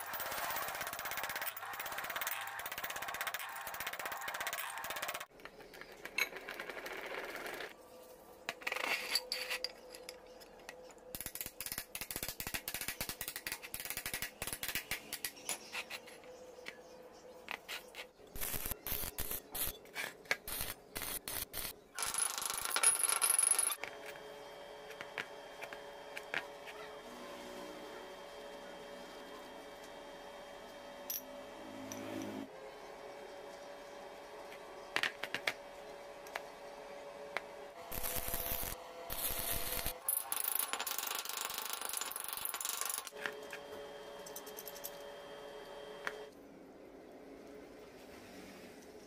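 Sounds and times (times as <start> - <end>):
steel pieces clinking: 37.9 - 43.2.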